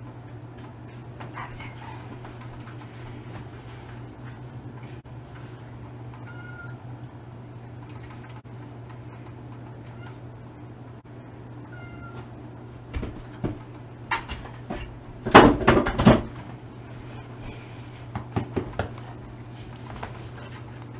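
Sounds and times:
cat meowing faintly: 6.2s - 6.8s, 11.7s - 12.3s.

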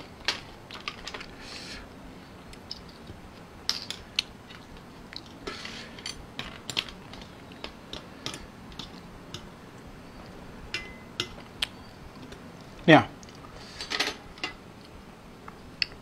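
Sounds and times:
cutlery clinking on shells: 10.8s - 11.4s.

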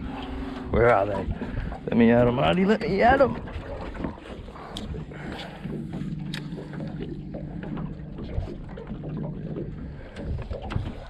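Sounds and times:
light water noise: 0.0s - 11.0s
wind: 0.0s - 11.0s
electric trolling motor humming: 3.9s - 10.6s.

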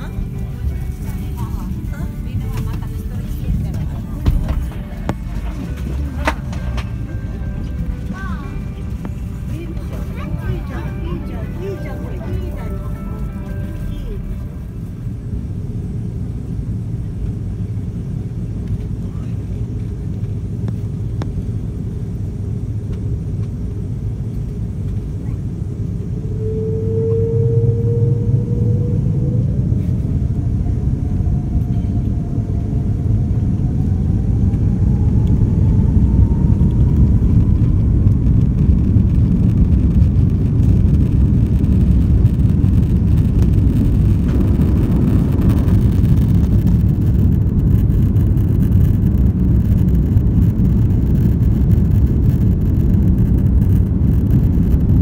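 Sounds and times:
low rumble of takeoff roll: 0.0s - 55.0s
jet engines spooling up: 25.6s - 54.6s.

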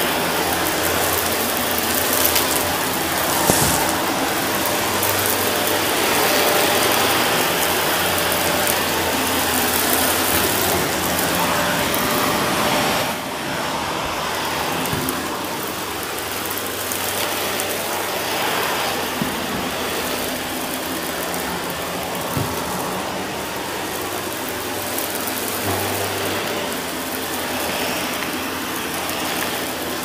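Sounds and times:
vacuum cleaner running on carpet: 0.0s - 30.0s
debris clicking in vacuum: 0.5s - 11.4s.

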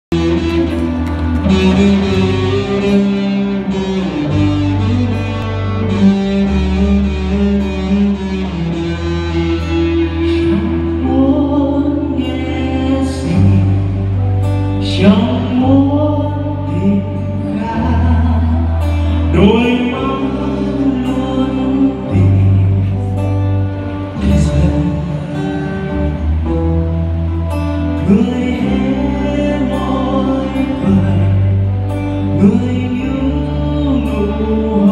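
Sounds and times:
live band playing: 0.1s - 34.9s
person singing: 0.1s - 34.9s.

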